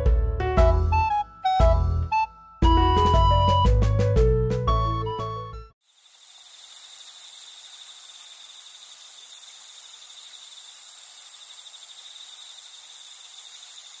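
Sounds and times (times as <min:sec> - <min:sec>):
crickets trilling: 0:05.8 - 0:14.0.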